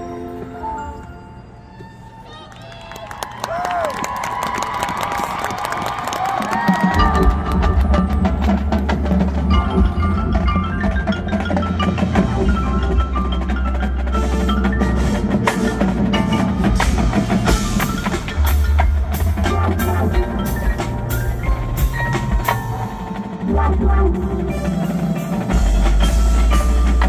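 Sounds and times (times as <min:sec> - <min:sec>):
marching band mallet percussion: 0:06.3 - 0:27.0
sharp percussion hits: 0:06.8 - 0:27.0.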